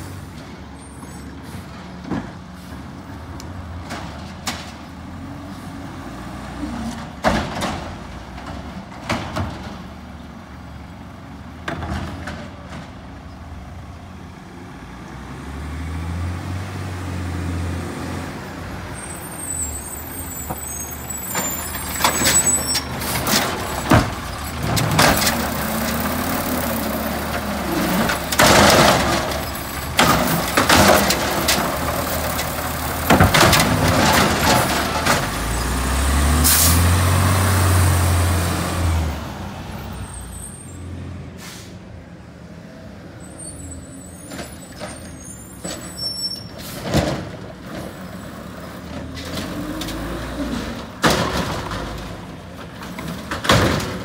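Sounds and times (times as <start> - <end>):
garbage truck engine running: 21.0 - 38.0
air brake hissing: 41.4 - 41.9.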